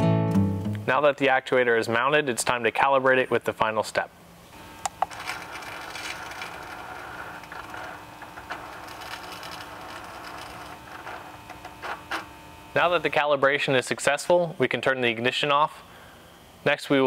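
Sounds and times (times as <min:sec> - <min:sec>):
actuator motor whirring: 0:04.6 - 0:13.1.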